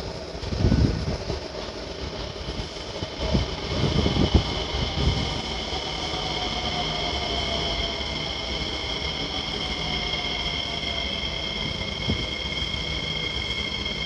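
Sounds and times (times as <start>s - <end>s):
metro train rumbling: 0.0s - 14.0s.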